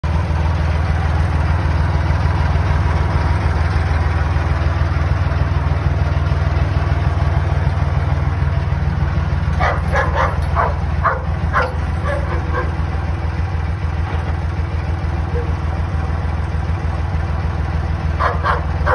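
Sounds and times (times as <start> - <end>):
tractor engine running: 0.0 - 18.9
dog barking: 9.6 - 12.8, 15.3 - 15.6, 18.2 - 18.9.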